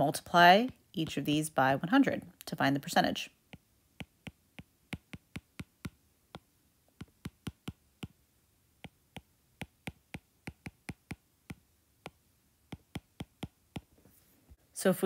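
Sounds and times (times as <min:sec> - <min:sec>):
stylus tapping on tablet screen: 0:00.5 - 0:01.3, 0:03.5 - 0:08.2, 0:08.8 - 0:14.0.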